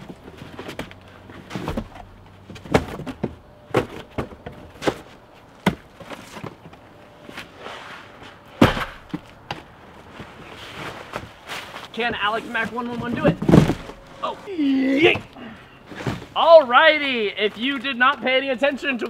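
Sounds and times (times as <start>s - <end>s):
boxes knocking and thudding: 0.0s - 7.5s, 8.4s - 16.5s
cardboard box flaps rustling: 12.8s - 14.3s.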